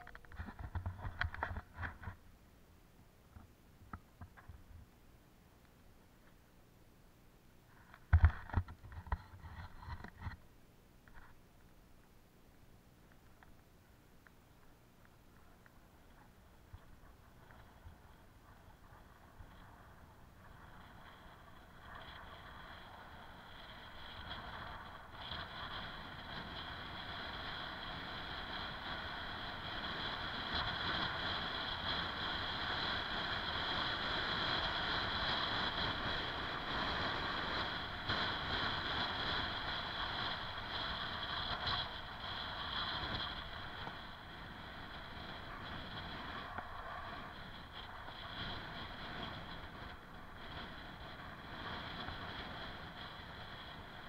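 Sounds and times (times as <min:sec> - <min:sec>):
bicycle tyre and drivetrain whir: 0:00.0 - 0:02.2, 0:07.7 - 0:10.4, 0:14.6 - 0:54.0
wind rushing over microphone: 0:15.9 - 0:54.0.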